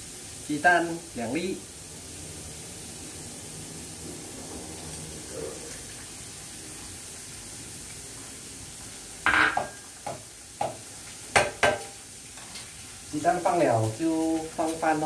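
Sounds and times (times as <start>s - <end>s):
food frying in a pan: 0.0s - 15.0s.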